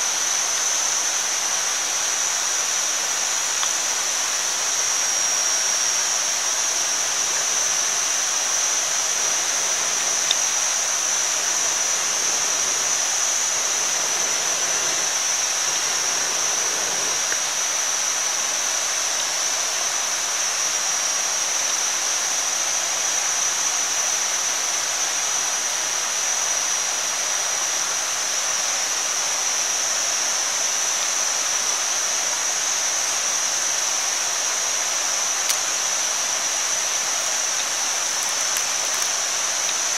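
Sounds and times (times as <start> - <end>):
meat sizzling on hot stone: 36.6 - 39.9.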